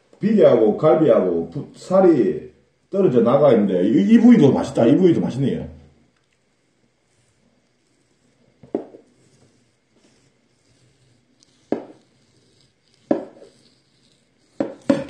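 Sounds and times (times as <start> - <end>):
knife cutting meat: 8.9 - 15.0
knife knocking on wooden board: 11.7 - 12.0, 13.1 - 13.4, 14.6 - 15.0.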